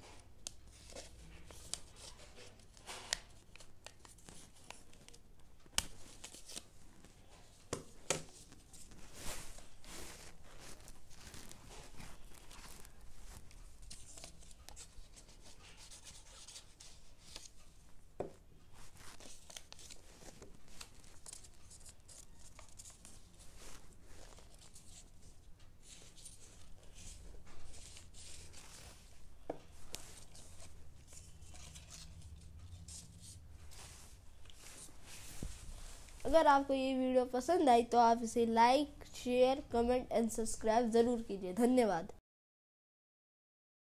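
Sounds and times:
paper rustling and crinkling: 0.0 - 17.7, 18.6 - 36.4.

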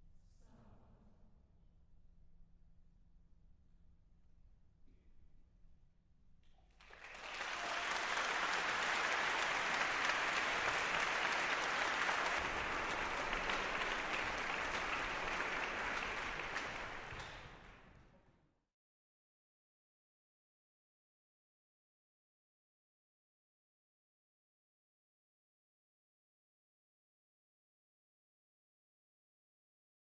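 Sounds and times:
audience applauding: 6.7 - 18.1.

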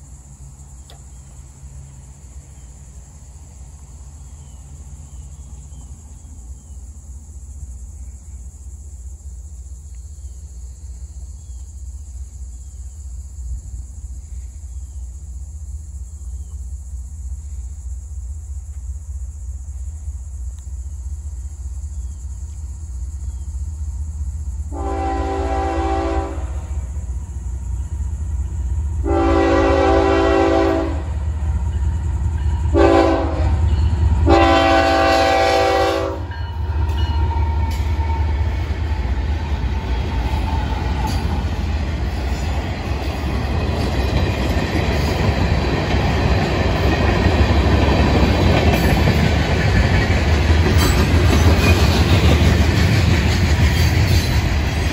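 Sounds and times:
locomotive engine rumble: 0.0 - 54.9
locomotive air horn: 24.7 - 26.8, 29.0 - 31.1, 32.7 - 36.3.

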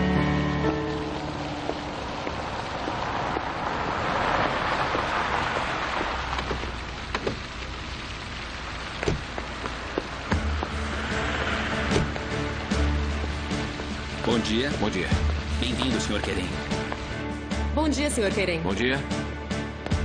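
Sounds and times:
car tyres rolling over cobblestones: 0.0 - 20.0
low rumble: 9.8 - 15.8.

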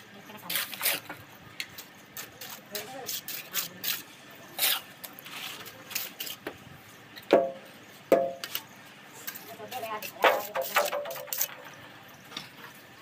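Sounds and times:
trowel scraping mortar: 0.4 - 1.1, 2.2 - 6.5, 9.2 - 11.7
trowel clinking against brick: 10.0 - 11.8.

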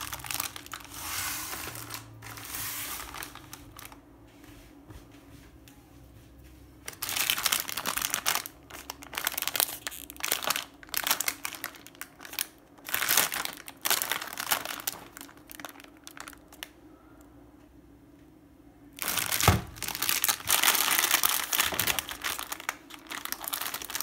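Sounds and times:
plastic wrapper crinkling: 0.0 - 4.0, 6.8 - 16.8, 19.0 - 24.0.

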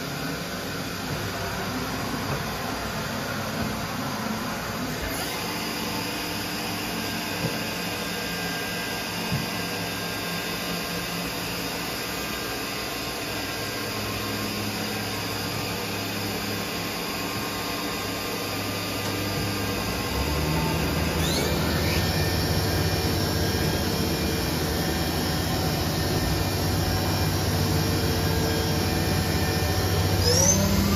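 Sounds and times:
machining centre humming: 13.5 - 30.9.

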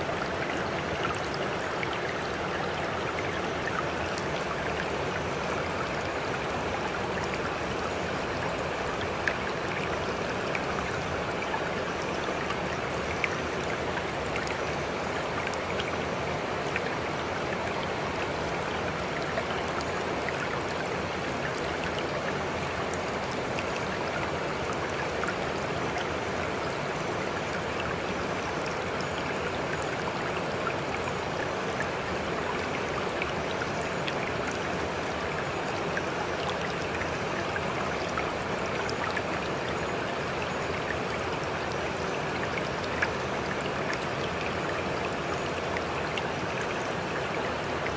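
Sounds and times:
running water: 0.0 - 47.9.

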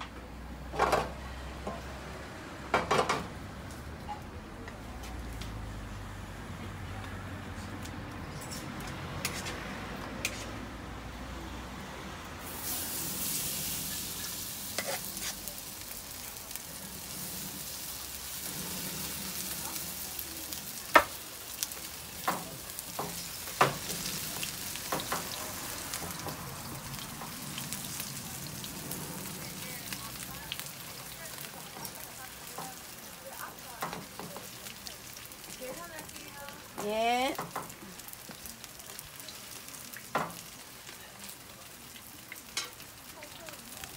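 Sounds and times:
batter sizzling in hot oil: 12.3 - 43.9.

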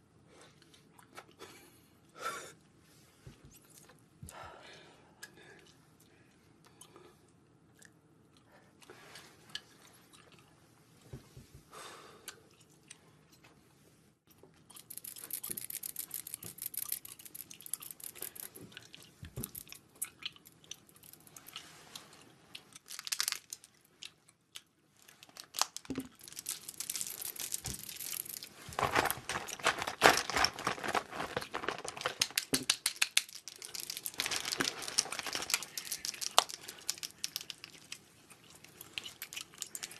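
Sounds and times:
plastic packaging crinkling: 22.8 - 23.8, 25.2 - 38.0.

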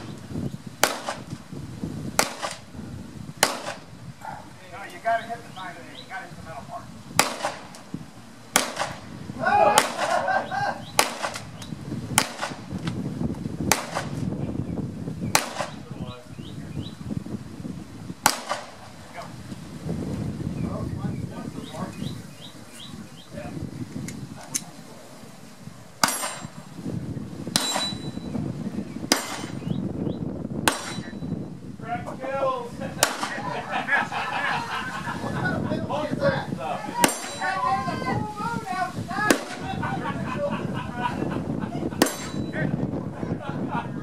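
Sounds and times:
pistol shots: 0.8 - 1.3, 2.2 - 2.7, 3.4 - 3.9, 7.2 - 7.8, 8.5 - 9.1, 9.7 - 10.2, 11.0 - 11.6, 12.2 - 12.7, 13.7 - 14.2, 15.4 - 15.8, 18.2 - 18.9, 29.1 - 29.8, 30.7 - 31.2, 33.0 - 33.5.

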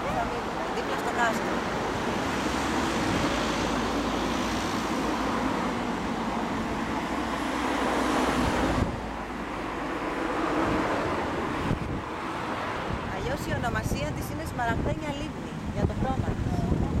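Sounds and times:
road traffic passing: 0.0 - 17.0.

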